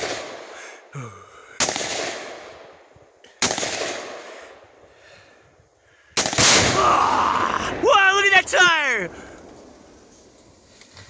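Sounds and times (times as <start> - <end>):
gunshots with long echo: 0.0 - 0.8, 1.5 - 4.8, 6.1 - 10.2.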